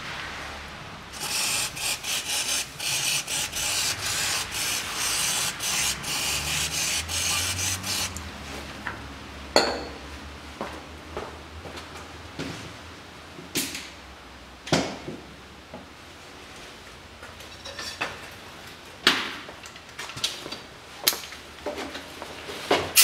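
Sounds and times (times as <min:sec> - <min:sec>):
aerosol spray can hissing: 0:01.2 - 0:08.2.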